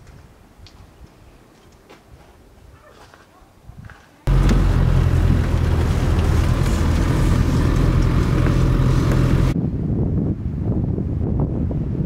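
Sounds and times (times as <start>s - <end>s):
car engine droning: 4.3s - 9.6s.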